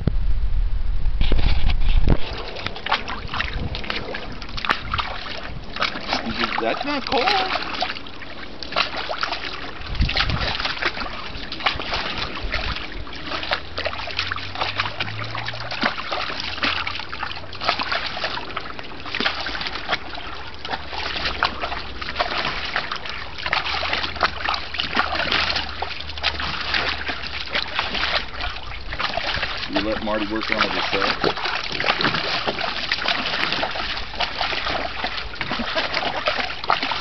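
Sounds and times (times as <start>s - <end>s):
dog splashing in water: 1.4s - 37.0s.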